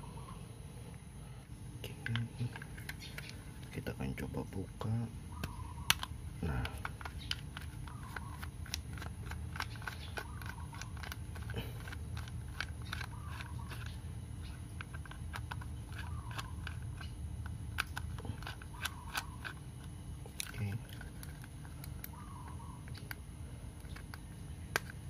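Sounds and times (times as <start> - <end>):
plastic shell handled: 2.0 - 3.8
screwdriver ticking and scraping: 5.9 - 22.2.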